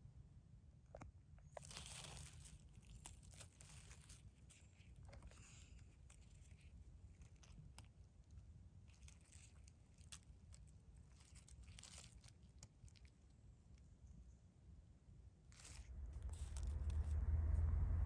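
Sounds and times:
low steady rumble: 0.0 - 18.0
dry leaves crackling and rustling: 1.6 - 7.9, 8.9 - 13.1, 15.6 - 17.2.

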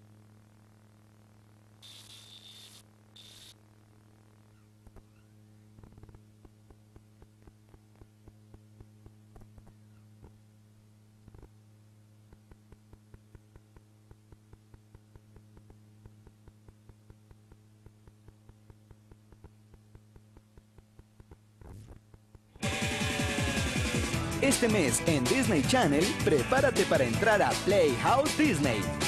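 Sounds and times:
faint electrical hum: 0.0 - 22.6
small clicks and crackles: 4.4 - 10.4, 11.2 - 11.6, 12.2 - 22.6.

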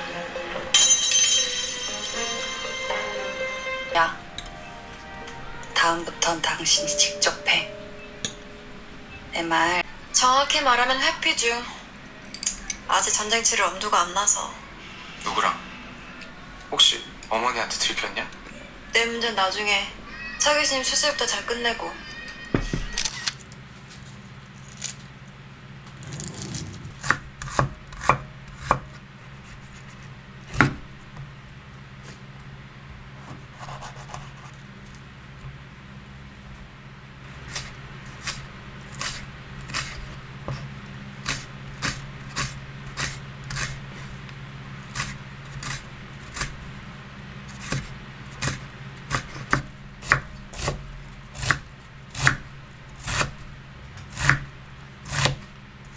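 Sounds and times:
low steady hum: 0.0 - 55.9
knife chopping on wooden board: 27.0 - 28.9, 30.5 - 30.8, 47.6 - 50.8, 51.4 - 53.3, 54.1 - 54.5, 55.1 - 55.4.

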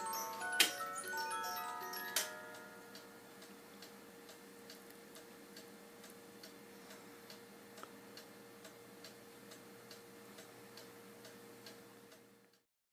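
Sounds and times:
faint steady hum: 0.0 - 12.6
clock ticking faintly: 2.5 - 12.6.

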